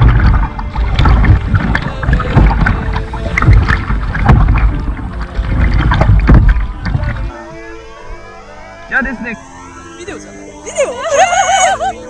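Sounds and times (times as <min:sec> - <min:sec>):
wind rumble on microphone: 0:00.0 - 0:07.3
paddle splashing: 0:00.0 - 0:08.6.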